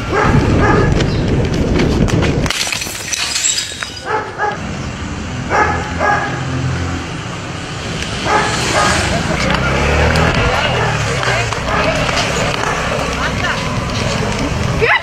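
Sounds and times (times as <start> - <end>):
dog barking: 0.1 - 1.0, 4.0 - 4.6, 5.5 - 6.5, 8.2 - 9.1, 10.7 - 13.0.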